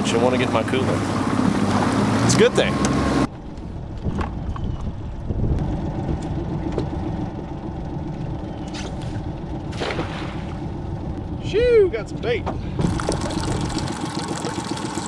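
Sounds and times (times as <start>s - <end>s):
steady low rumble: 3.3s - 13.9s
net splashing into water: 9.7s - 10.6s.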